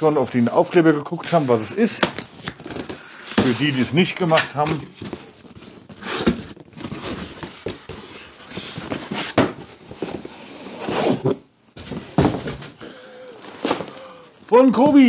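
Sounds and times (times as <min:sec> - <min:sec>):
cardboard scraping and rustling: 0:01.2 - 0:12.8
knocks on cardboard carton: 0:12.1 - 0:12.7.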